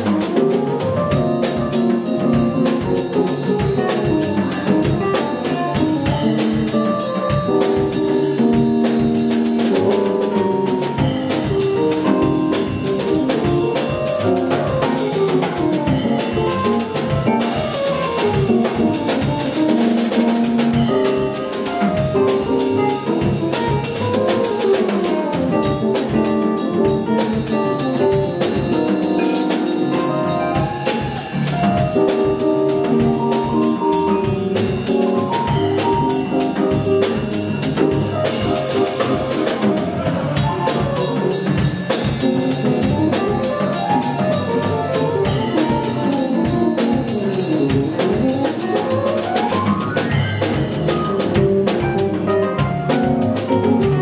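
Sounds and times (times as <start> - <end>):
jazz combo playing: 0.0 - 54.0.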